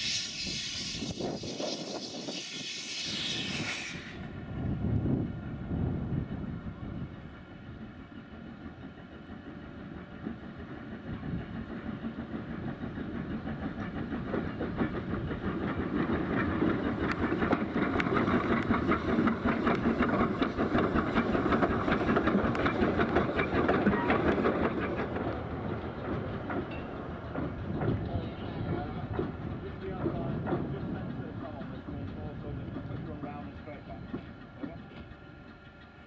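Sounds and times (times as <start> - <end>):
steam hissing: 0.0 - 4.4
train wheels clicking on rail joints: 0.0 - 4.4, 7.2 - 36.0.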